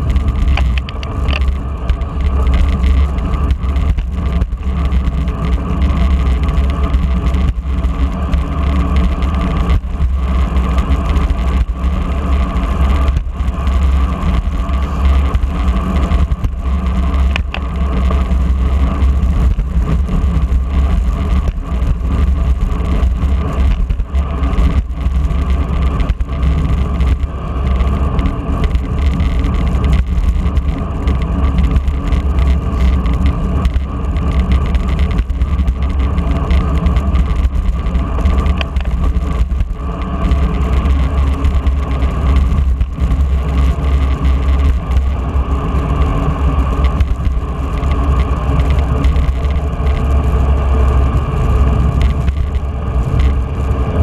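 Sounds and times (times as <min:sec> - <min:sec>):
bicycle tyres humming on road: 0:00.0 - 0:54.0.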